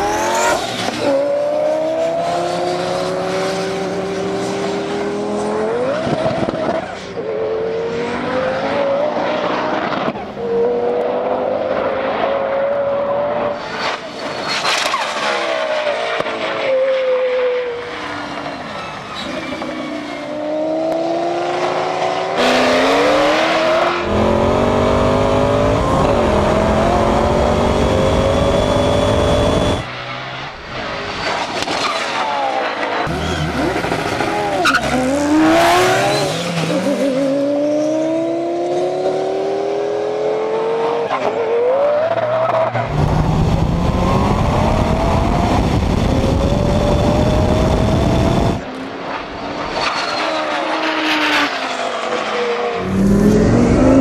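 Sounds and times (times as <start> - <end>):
supercar engines at full throttle: 0.0 - 15.4, 20.2 - 49.8, 50.7 - 54.0
wind rush on microphone: 42.9 - 48.6.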